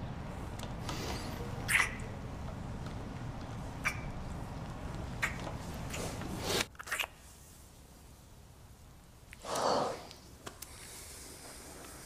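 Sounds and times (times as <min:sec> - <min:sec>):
wet lip smacks: 0:05.2 - 0:07.2.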